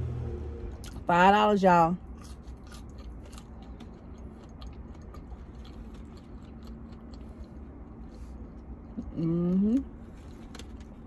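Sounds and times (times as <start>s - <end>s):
steady low rumble: 0.0s - 11.0s
chewing with wet mouth clicks: 2.1s - 9.2s.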